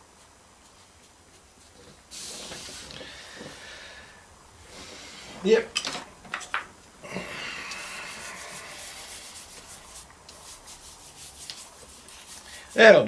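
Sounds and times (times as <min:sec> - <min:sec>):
eraser rubbing on paper: 0:07.6 - 0:13.0.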